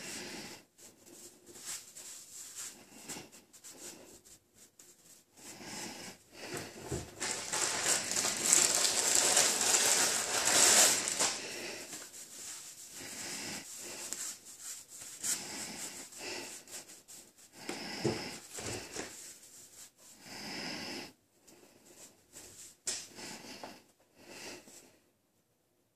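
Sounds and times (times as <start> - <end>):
paracord rustling and rubbing: 0.0 - 20.3.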